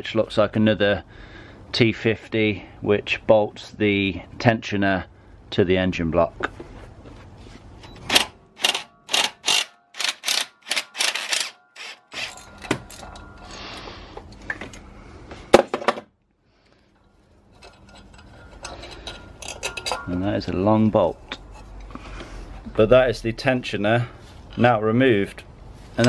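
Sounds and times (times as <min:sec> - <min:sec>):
sharp metallic click: 0:08.1 - 0:12.3
hand ratchet clicking: 0:08.1 - 0:12.4.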